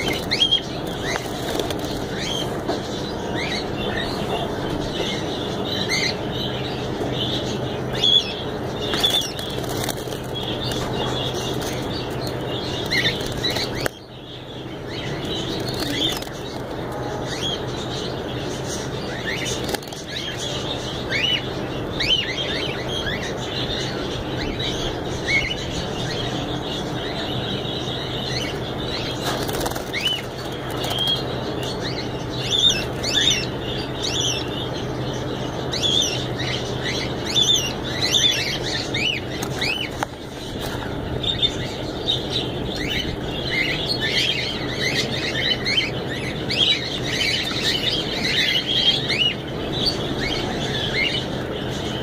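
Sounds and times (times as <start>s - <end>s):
wings fluttering: 0.0s - 5.0s, 8.7s - 14.0s, 14.9s - 17.0s, 19.2s - 20.3s, 28.3s - 32.0s
birds chirping: 0.0s - 52.0s
steady low hum: 0.0s - 52.0s.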